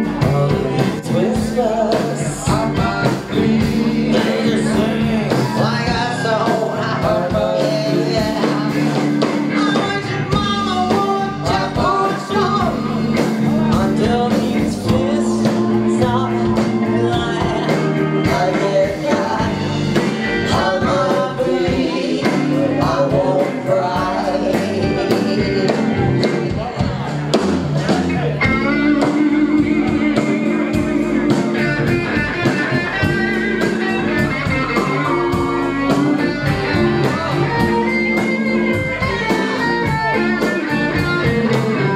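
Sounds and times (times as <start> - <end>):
woman singing: 0.0 - 26.1, 28.6 - 31.4
live rock band playing: 0.0 - 41.9.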